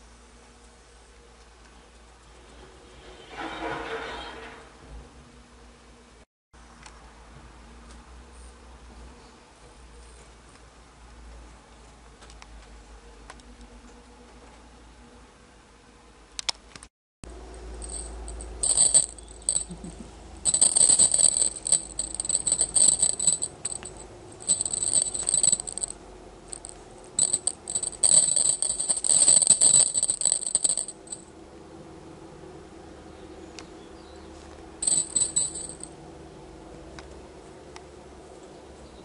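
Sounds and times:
rattle toy jingling: 17.8s - 31.2s, 34.8s - 35.9s.

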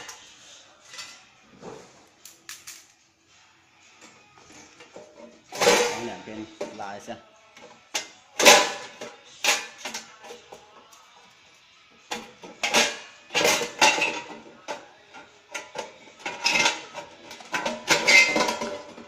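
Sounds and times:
sheet metal clanking: 4.8s - 6.8s.

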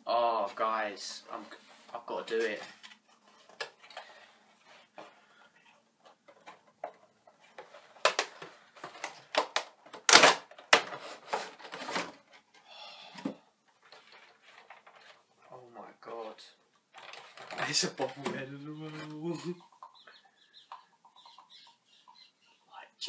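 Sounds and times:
cardboard and plastic handling: 1.5s - 12.6s, 13.2s - 15.6s, 16.9s - 19.8s
sharp plastic crackling: 1.9s - 12.6s, 16.8s - 21.6s.

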